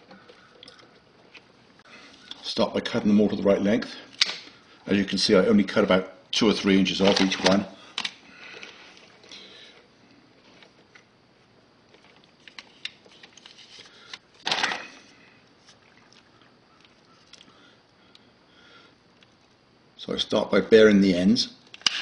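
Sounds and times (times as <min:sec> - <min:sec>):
wires clicking and rustling: 0:11.8 - 0:15.0.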